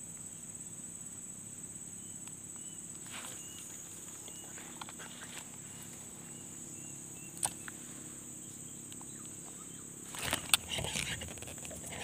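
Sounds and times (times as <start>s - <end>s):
rustling and clattering: 10.1s - 12.0s.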